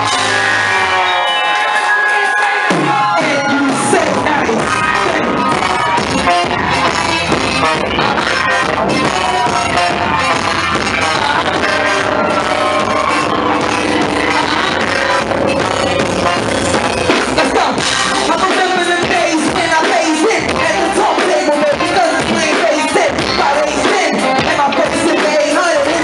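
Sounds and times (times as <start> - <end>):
live band music: 0.0 - 26.0
saxophones holding long notes: 10.5 - 18.0.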